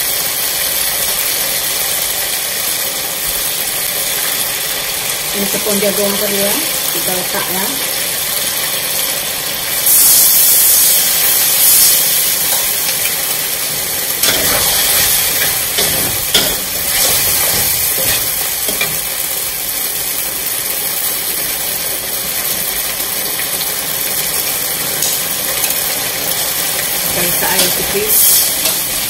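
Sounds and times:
sauce sizzling in wok: 0.0s - 29.0s
metal spatula scraping wok: 12.2s - 19.2s, 27.1s - 29.0s.

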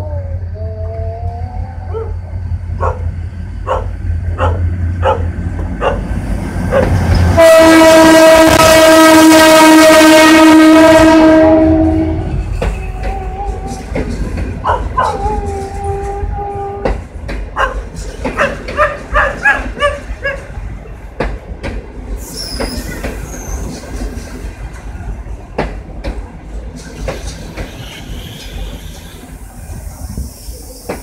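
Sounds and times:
train rumbling: 0.0s - 31.0s
dog barking: 2.8s - 6.1s, 6.7s - 7.0s, 14.6s - 15.2s, 17.6s - 20.5s
train wheels clicking: 12.3s - 31.0s.

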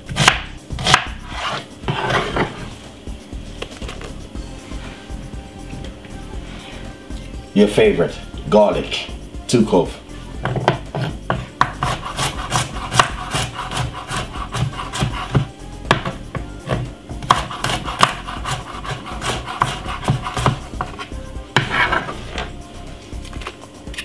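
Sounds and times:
garlic rasping against hard surface: 0.1s - 2.8s, 10.4s - 22.5s.

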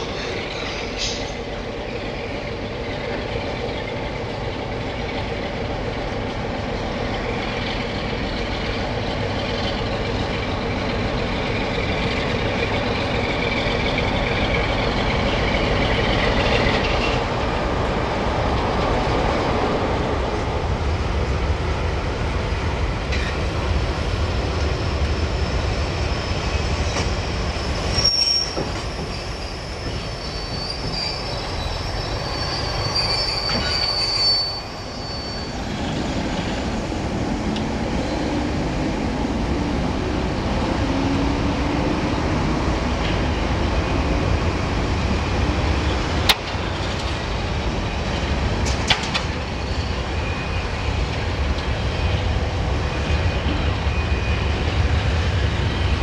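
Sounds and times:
diesel locomotive engine drone: 0.0s - 56.0s
high wheel squeal: 24.5s - 36.6s, 49.4s - 51.1s.

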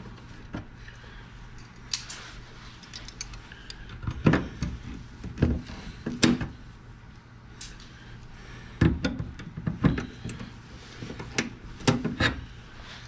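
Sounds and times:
metal tabs clicking and clinking: 2.8s - 3.8s.

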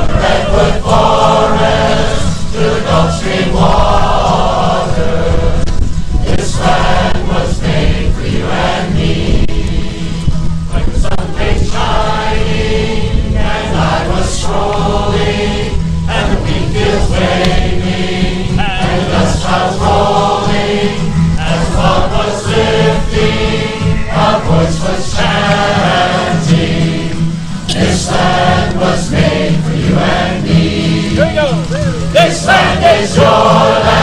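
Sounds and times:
chorus singing: 0.0s - 34.0s
double bass line: 0.0s - 34.0s
strummed acoustic guitars: 0.0s - 34.0s.

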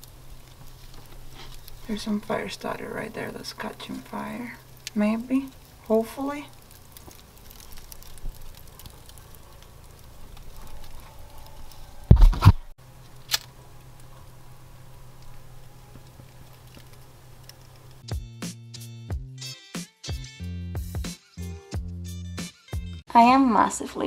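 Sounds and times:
fire crackling faintly: 0.0s - 18.2s.

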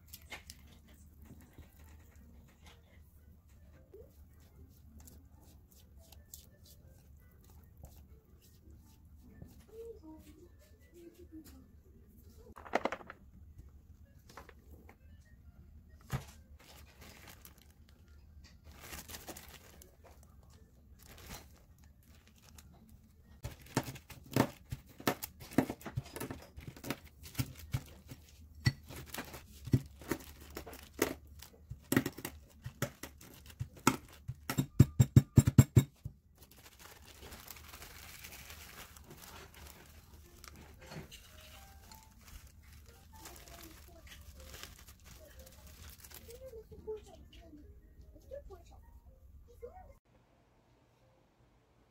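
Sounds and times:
plastic bag crinkling: 16.2s - 34.4s, 36.4s - 46.7s
almonds being crushed in bag: 23.4s - 28.2s, 28.8s - 34.5s, 36.4s - 46.4s.

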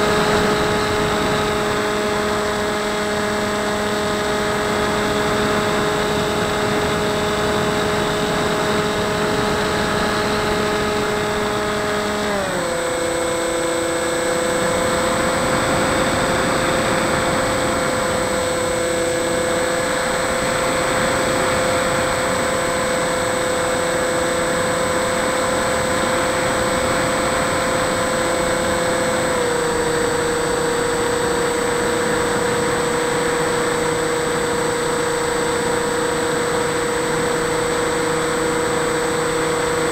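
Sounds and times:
propeller motor whine: 0.0s - 39.9s.

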